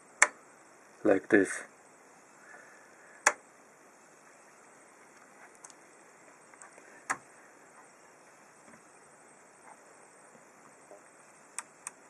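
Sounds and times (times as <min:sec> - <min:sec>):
low room hiss: 0:00.0 - 0:12.0
faint ticks: 0:10.8 - 0:12.0.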